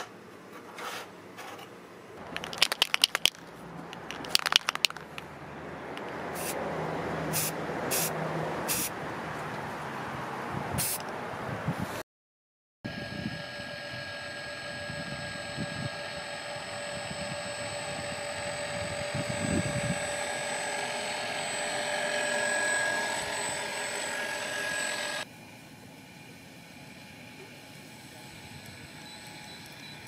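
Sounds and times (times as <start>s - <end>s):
wind buffeting microphone: 10.4s - 12.0s, 16.9s - 20.2s
electric motor whine: 12.9s - 25.3s, 26.9s - 30.0s.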